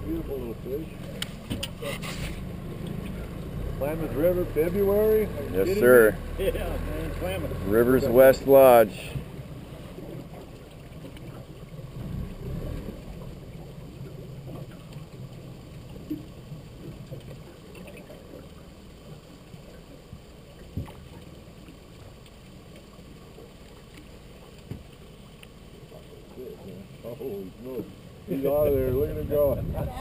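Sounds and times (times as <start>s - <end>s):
river water lapping against boat hull: 0.0s - 30.0s
light knocks on boat: 24.6s - 24.9s.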